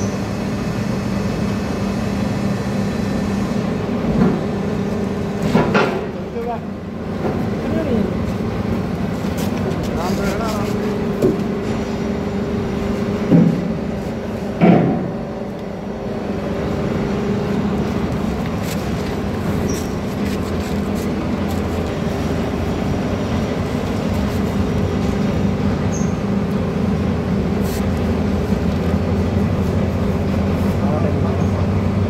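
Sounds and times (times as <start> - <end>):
hydraulic press pump humming: 0.0 - 32.0
sharp knocks: 14.6 - 15.2.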